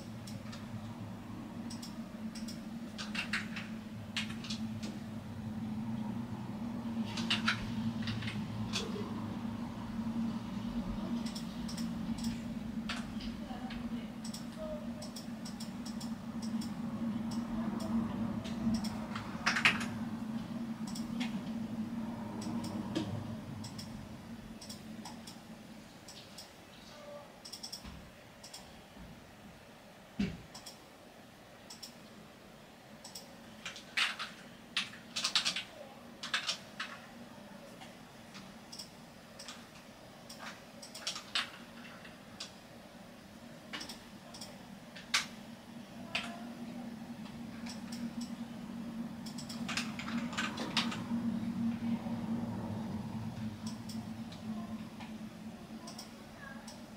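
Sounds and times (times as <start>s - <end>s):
steady low hum: 0.0s - 56.9s
keyboard and mouse clicks: 1.6s - 5.0s, 7.0s - 9.0s, 11.1s - 21.6s, 22.3s - 24.0s, 24.6s - 25.4s, 27.4s - 28.7s, 30.5s - 30.8s, 31.7s - 32.1s, 33.0s - 37.0s, 38.3s - 42.6s, 43.7s - 45.4s, 47.2s - 48.4s, 49.2s - 51.2s, 53.6s - 55.2s, 55.8s - 56.9s.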